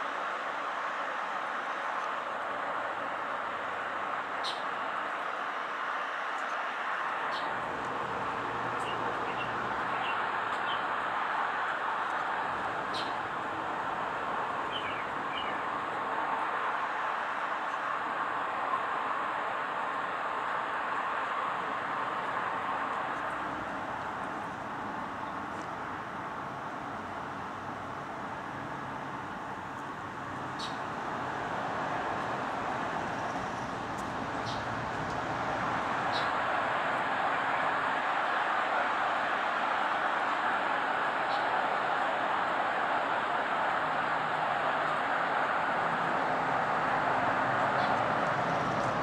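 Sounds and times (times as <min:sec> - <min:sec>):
outdoor background hiss: 0:00.0 - 0:49.0.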